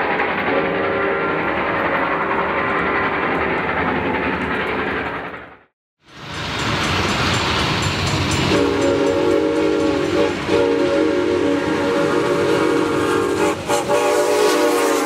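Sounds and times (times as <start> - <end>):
rumble of moving train: 0.0 - 15.0
steam locomotive chime whistle: 6.2 - 15.0.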